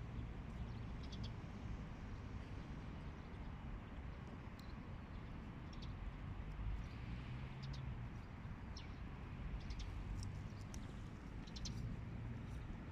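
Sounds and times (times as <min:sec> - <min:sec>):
small birds chirping: 0:00.5 - 0:01.4, 0:07.6 - 0:12.9.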